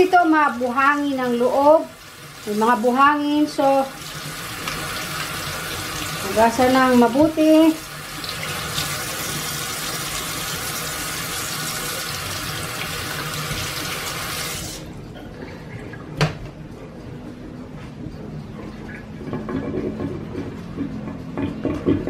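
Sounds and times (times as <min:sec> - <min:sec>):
tap water splashing into sink: 0:12.7 - 0:14.2.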